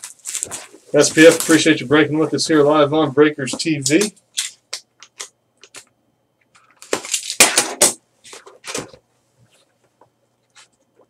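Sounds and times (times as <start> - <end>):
plastic wrap crinkling: 0.0 - 2.4.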